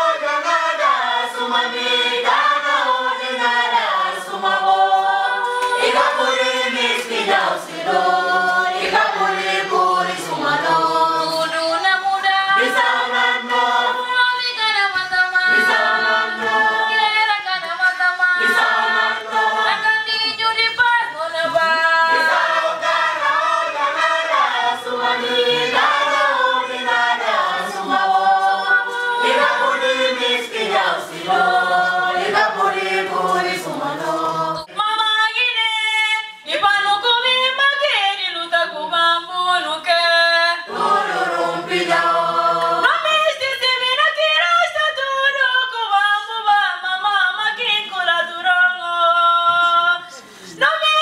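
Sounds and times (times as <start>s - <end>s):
choir singing unaccompanied: 0.0s - 35.0s, 40.6s - 43.1s.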